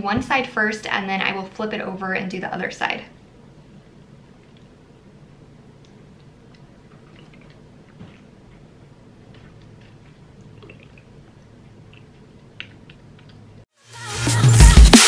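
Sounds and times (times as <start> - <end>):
liquid squishing and dripping: 4.0 - 13.6.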